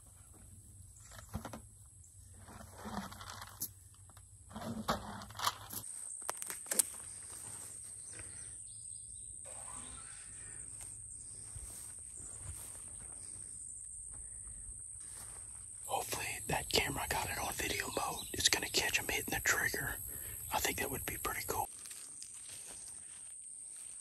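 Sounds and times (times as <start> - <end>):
faint outdoor hiss: 7.4 - 22.8.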